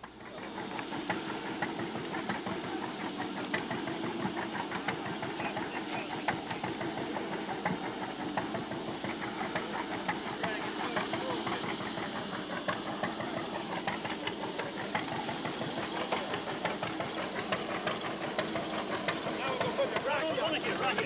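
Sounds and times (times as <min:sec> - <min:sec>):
engine running: 0:00.0 - 0:21.0
rapid mechanical clatter: 0:00.0 - 0:21.0.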